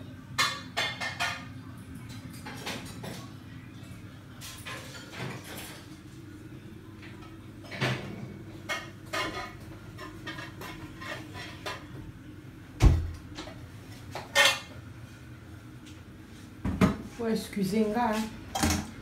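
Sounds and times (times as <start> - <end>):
dishes and cutlery clinking: 0.2 - 6.1, 7.0 - 12.0, 13.4 - 14.8, 18.5 - 19.0.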